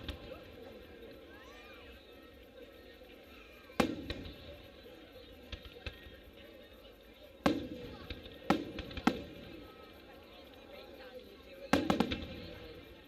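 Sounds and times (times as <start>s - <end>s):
firework cracks: 3.6s - 6.4s, 7.4s - 10.2s, 11.7s - 13.0s
firework shells bursting: 3.7s - 4.8s, 7.4s - 10.1s, 11.7s - 13.0s.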